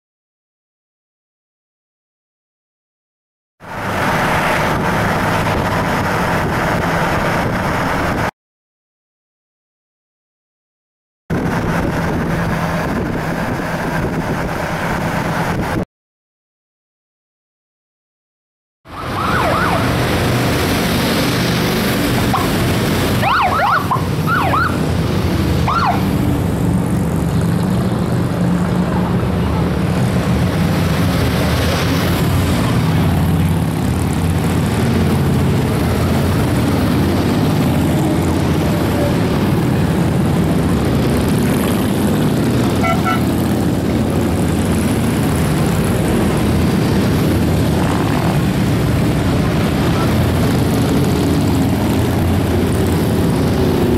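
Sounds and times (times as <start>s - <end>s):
siren whoops: 18.9s - 20.0s, 23.2s - 24.8s, 25.6s - 26.1s
motorcycles rumbling past: 19.2s - 53.9s.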